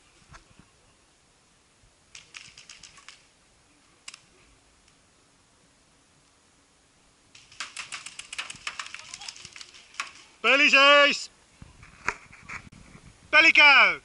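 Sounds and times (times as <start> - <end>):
distant paintball markers firing: 7.3 - 10.3.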